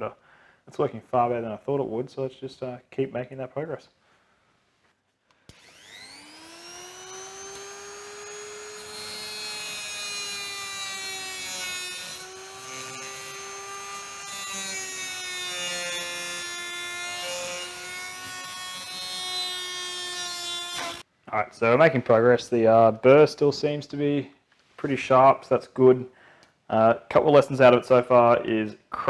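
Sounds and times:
rotary tool whining: 0:05.5 - 0:21.0.

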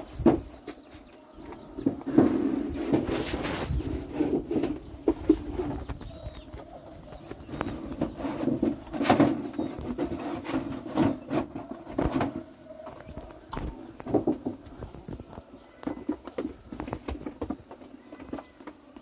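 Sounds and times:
rustling: 0:00.0 - 0:18.8
low bird calls: 0:00.0 - 0:19.0.

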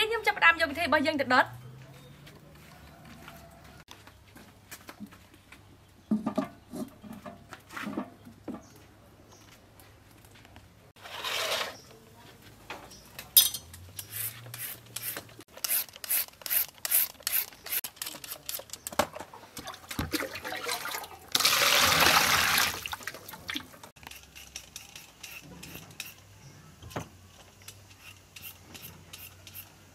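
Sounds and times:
peeler scraping a carrot: 0:14.0 - 0:18.8, 0:24.0 - 0:26.3, 0:27.6 - 0:29.9
water splashing into plastic basin: 0:19.6 - 0:23.8.

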